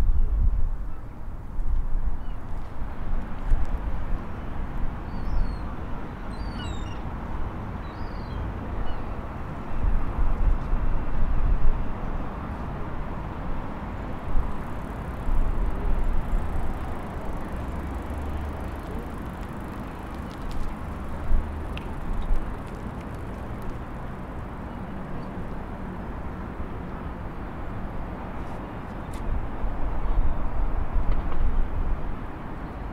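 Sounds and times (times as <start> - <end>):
faint clicks: 14.8 - 24.1.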